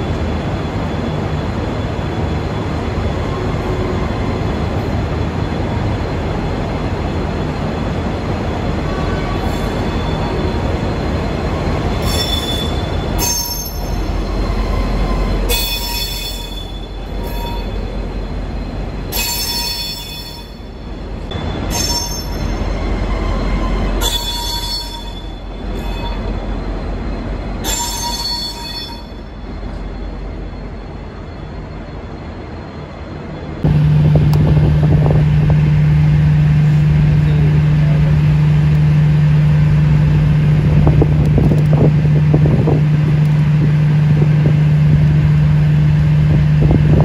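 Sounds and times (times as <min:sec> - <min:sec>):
diesel locomotive rumble: 0:00.0 - 0:47.0
train wheels squealing: 0:08.9 - 0:33.6.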